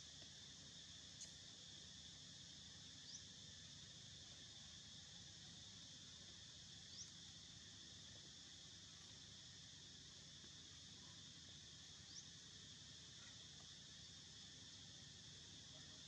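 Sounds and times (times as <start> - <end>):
high-pitched insect drone: 0.0 - 16.0.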